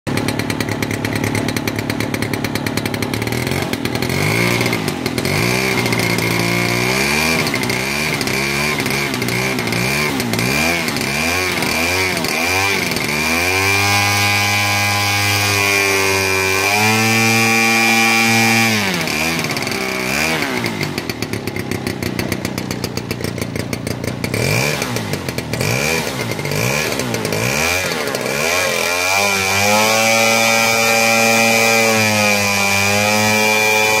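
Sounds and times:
model aircraft engine buzzing: 0:00.1 - 0:34.0.

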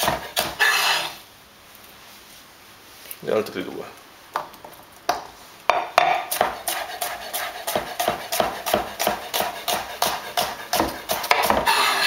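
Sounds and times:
knife chopping on cutting board: 0:00.0 - 0:01.0, 0:05.1 - 0:12.0.

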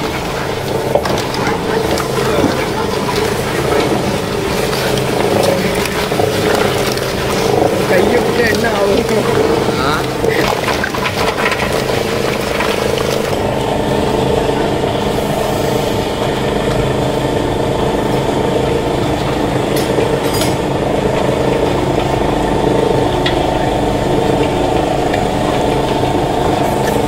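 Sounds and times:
oil press crushing: 0:00.0 - 0:15.1
machine hum: 0:00.0 - 0:27.0.

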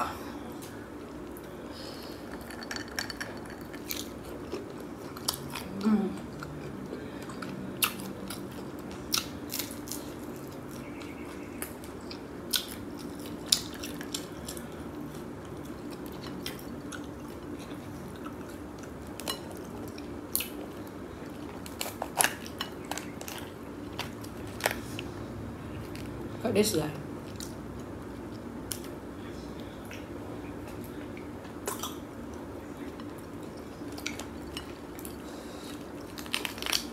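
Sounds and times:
steady low hum: 0:00.0 - 0:36.9
chewing: 0:02.2 - 0:26.2, 0:29.8 - 0:36.9
crab shell cracking: 0:36.1 - 0:36.9.

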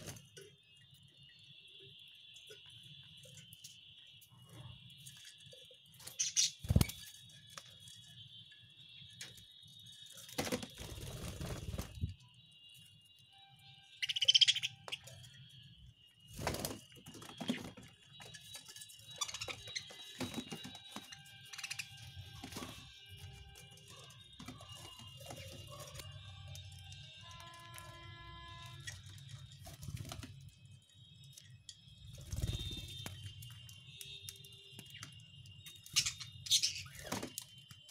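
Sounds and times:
budgerigars chirping and chattering: 0:06.0 - 0:07.0, 0:14.0 - 0:15.3, 0:17.3 - 0:23.4, 0:35.8 - 0:37.2.

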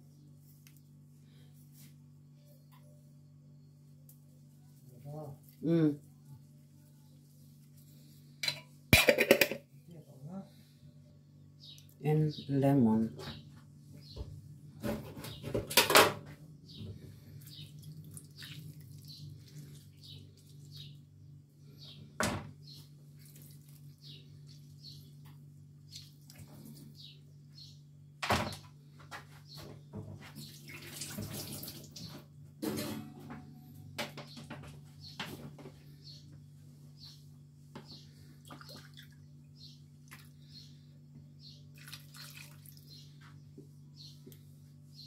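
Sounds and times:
low steady hum: 0:00.0 - 0:30.7, 0:31.4 - 0:45.0
knocks and clatters at a sink: 0:08.5 - 0:09.7, 0:14.8 - 0:16.3, 0:28.2 - 0:35.7
water splashing in a sink: 0:17.8 - 0:19.9, 0:30.4 - 0:32.1, 0:38.4 - 0:39.2, 0:41.7 - 0:42.9.

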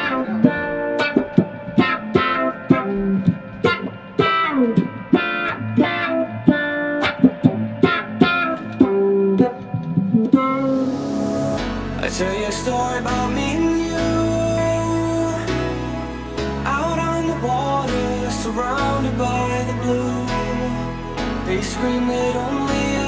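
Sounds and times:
plucked electric guitar runs: 0:00.0 - 0:11.6
bass line: 0:08.8 - 0:23.0.

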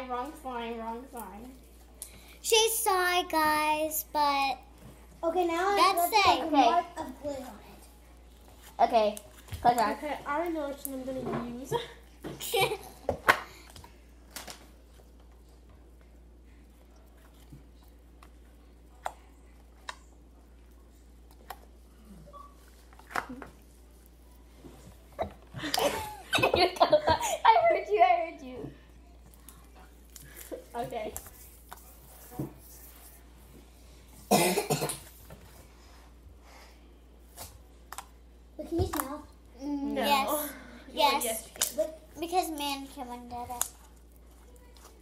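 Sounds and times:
person coughing: 0:34.3 - 0:35.1.

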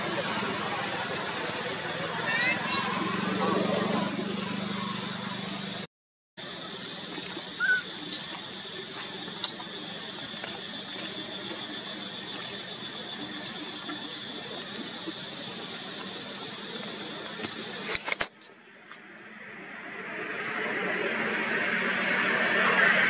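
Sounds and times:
constant high hum: 0:00.0 - 0:23.0
monkey squeak: 0:07.6 - 0:07.9.

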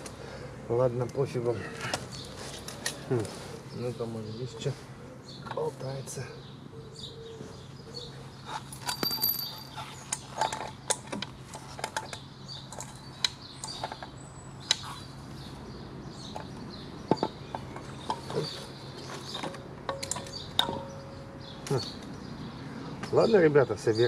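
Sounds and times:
metal parts clinking and knocking: 0:08.6 - 0:14.1, 0:19.2 - 0:21.1.

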